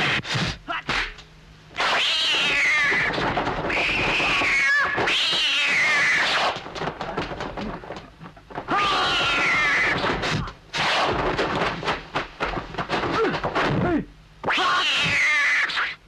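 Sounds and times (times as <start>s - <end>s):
cat-like screeching yowls: 1.8s - 6.6s, 8.7s - 11.1s, 14.4s - 16.0s.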